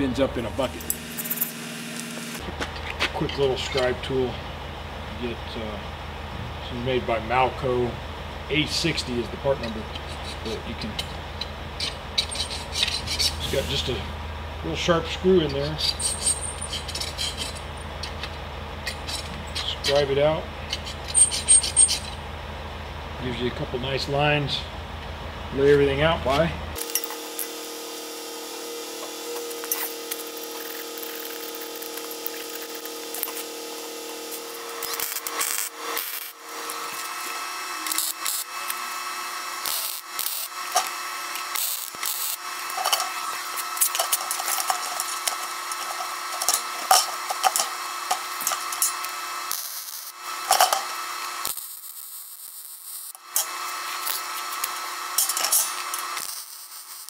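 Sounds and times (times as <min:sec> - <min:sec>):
welder sizzling crackle: 0:00.0 - 0:02.5, 0:11.8 - 0:14.0, 0:15.9 - 0:18.2, 0:20.7 - 0:22.2, 0:26.8 - 0:57.0
steady background hum: 0:00.0 - 0:57.0.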